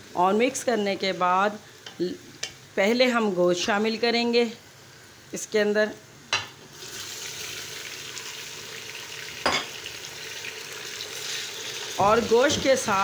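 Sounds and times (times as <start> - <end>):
meat sizzling in hot oil: 4.8 - 13.0.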